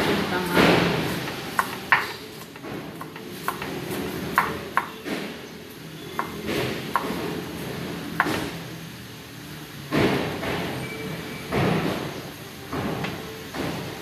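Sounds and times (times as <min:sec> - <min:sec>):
knife chopping on wooden board: 0:00.5 - 0:05.3.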